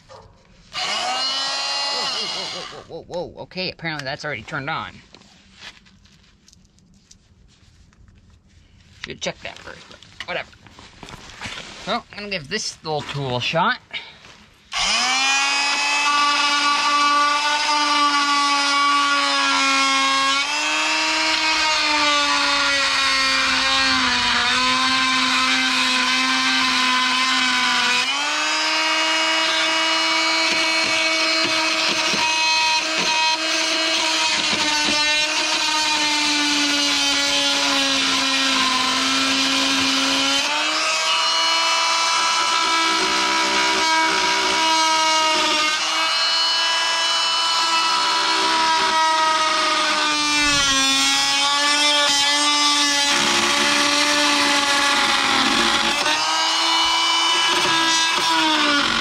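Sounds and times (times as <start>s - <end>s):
power tool grinding steel: 0.6s - 2.9s, 14.7s - 59.0s.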